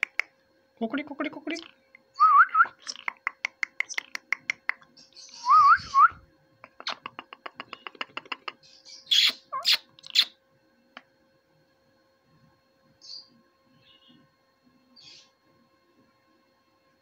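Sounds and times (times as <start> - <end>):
parakeets clicking: 0.0 - 0.3, 2.8 - 5.3, 6.6 - 10.3
parakeet rising whistle: 5.4 - 6.2
parakeet harsh screeches: 9.1 - 10.4.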